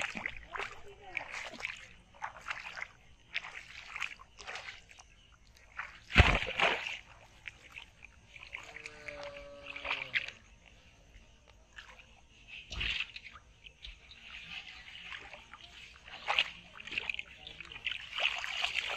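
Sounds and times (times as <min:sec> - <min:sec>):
water splashing and sloshing: 0:00.0 - 0:18.9
faint drawn-out call: 0:08.4 - 0:10.5.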